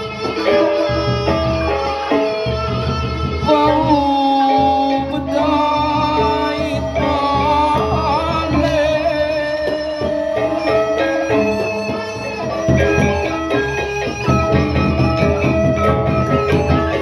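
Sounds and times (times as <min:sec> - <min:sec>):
bamboo flute melody: 0:00.0 - 0:17.0
man singing long wavering notes: 0:03.4 - 0:11.0.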